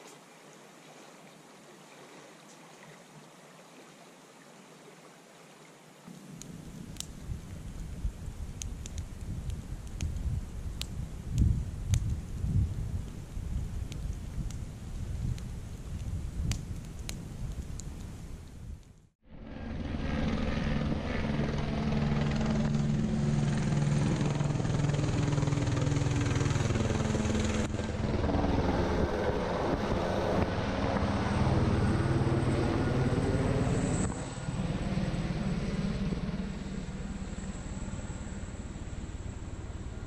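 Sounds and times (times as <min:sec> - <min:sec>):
helicopter flying overhead: 0:19.2 - 0:40.0.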